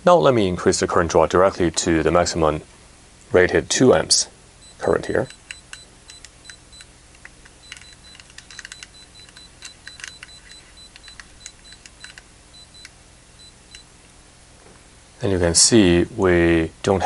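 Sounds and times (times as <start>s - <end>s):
faint low hum: 0.0s - 17.0s
rotary knob clicking: 5.2s - 12.9s.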